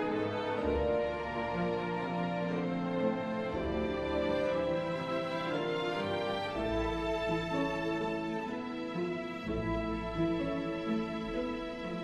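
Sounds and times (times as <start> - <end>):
symphony orchestra playing slowly: 0.0 - 12.0.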